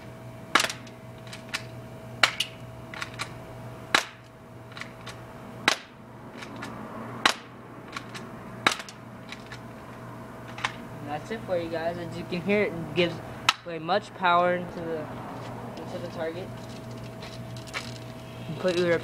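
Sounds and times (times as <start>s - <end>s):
bb pistol shots popping: 3.9s - 4.2s, 5.6s - 5.9s, 8.6s - 8.9s.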